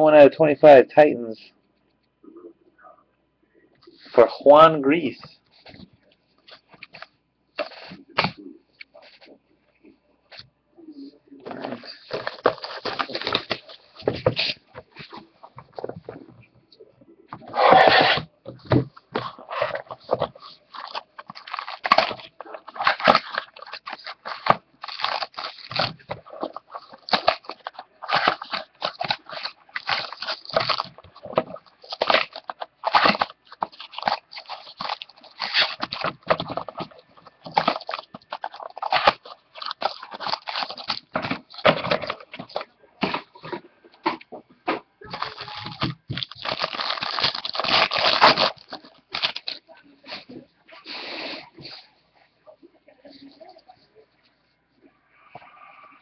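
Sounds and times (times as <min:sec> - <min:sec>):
foil wrappers crinkling: 0:11.5 - 0:16.1, 0:19.0 - 0:43.5, 0:45.0 - 0:50.2.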